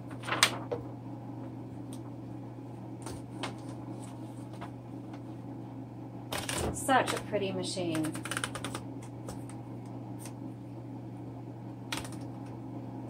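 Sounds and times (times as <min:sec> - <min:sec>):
paper rustling: 0:00.0 - 0:00.9.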